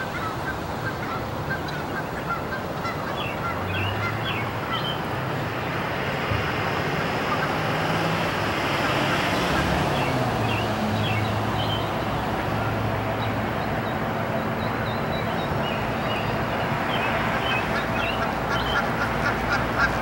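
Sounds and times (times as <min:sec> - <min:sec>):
geese honking: 0:00.0 - 0:05.1, 0:06.4 - 0:20.0
distant traffic: 0:00.0 - 0:20.0
small birds chirping: 0:08.8 - 0:12.3, 0:13.2 - 0:19.0.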